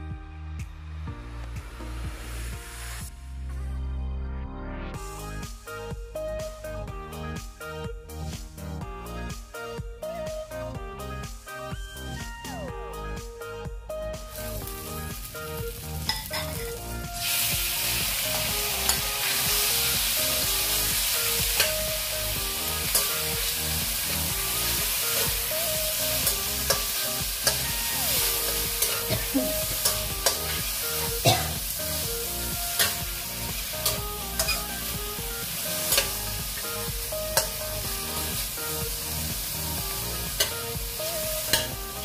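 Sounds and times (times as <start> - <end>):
chicken sizzling in a wok: 14.3 - 42.0.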